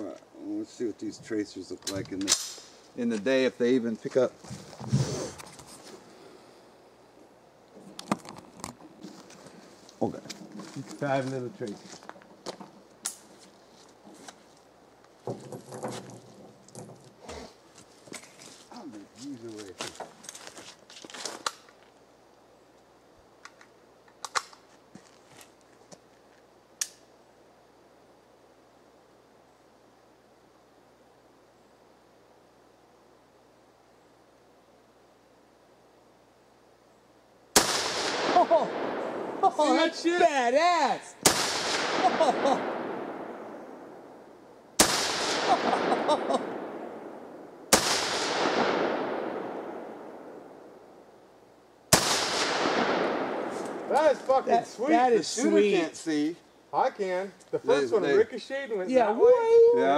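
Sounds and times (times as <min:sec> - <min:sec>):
rifle loading clicks: 0:23.4 - 0:24.6
gunshot echo: 0:37.6 - 0:39.3, 0:41.2 - 0:43.9, 0:44.8 - 0:50.5, 0:51.9 - 0:53.9
rifle shots: 0:37.6 - 0:39.3, 0:41.2 - 0:43.8, 0:44.8 - 0:50.5, 0:51.9 - 0:53.9.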